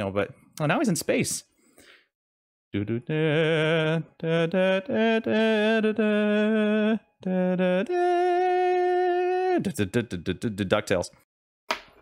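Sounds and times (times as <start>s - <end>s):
man singing wordless tune: 2.8s - 11.0s.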